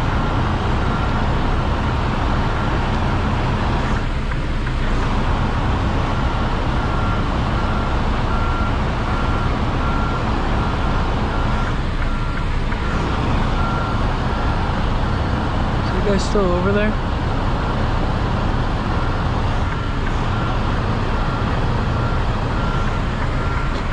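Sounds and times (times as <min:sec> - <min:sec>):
truck diesel engine running: 0:00.0 - 0:23.9
reverse alarm beeping: 0:06.1 - 0:17.0, 0:18.9 - 0:23.9.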